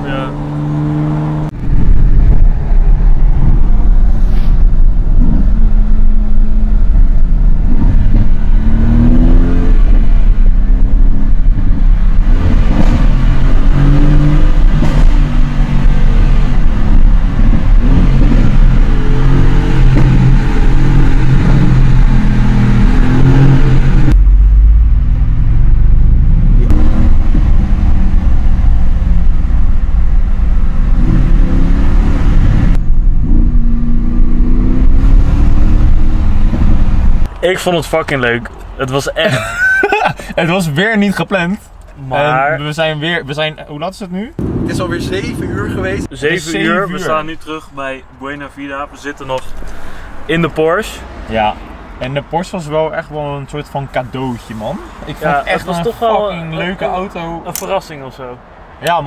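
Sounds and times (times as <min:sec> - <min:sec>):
car engine revving in cabin: 0:00.0 - 0:37.3.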